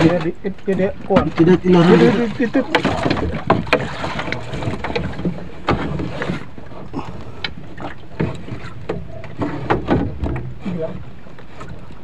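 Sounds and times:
wind and sea rumble: 0:00.0 - 0:12.0.

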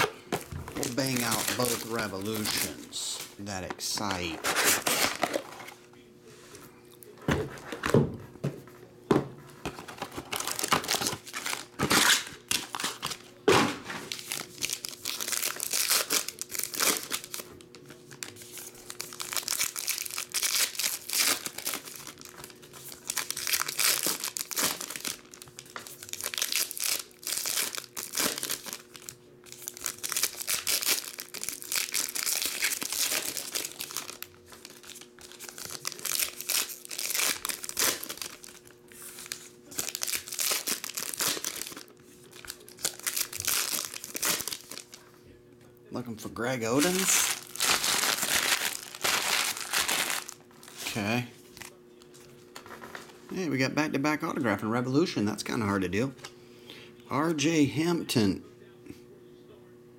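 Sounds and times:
foil wrappers crinkling and tearing: 0:00.0 - 0:05.8, 0:09.7 - 0:45.0, 0:46.4 - 0:51.8.

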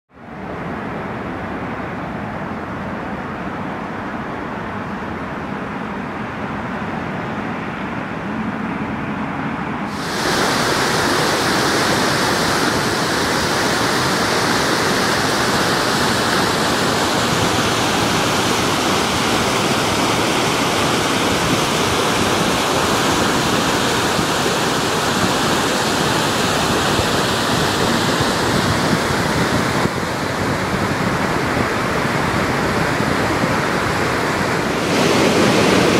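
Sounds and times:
water rushing over a spillway: 0:09.9 - 0:35.9.

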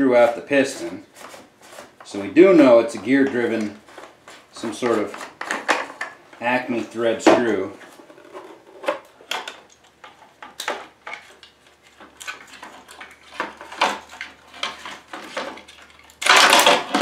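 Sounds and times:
plastic and tools clicking and rattling: 0:04.8 - 0:06.2, 0:07.3 - 0:17.0.

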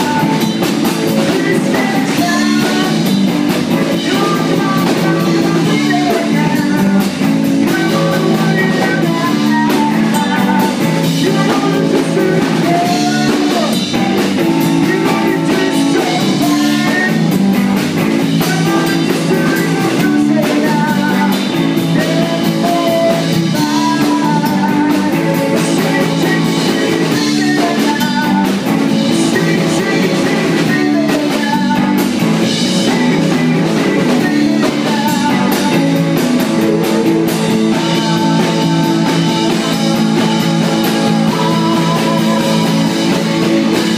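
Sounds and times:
drum kit beat: 0:00.0 - 0:43.9
electric guitar: 0:00.0 - 0:43.9
funk band playing: 0:00.0 - 0:43.9.

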